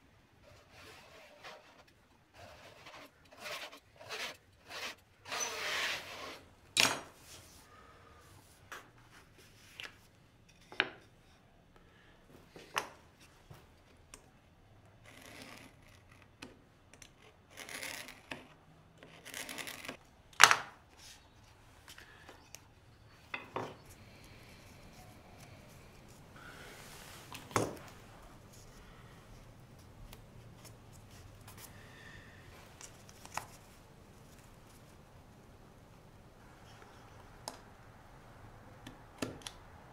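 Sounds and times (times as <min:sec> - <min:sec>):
knife scraping through wood veneer: 0:00.6 - 0:06.4.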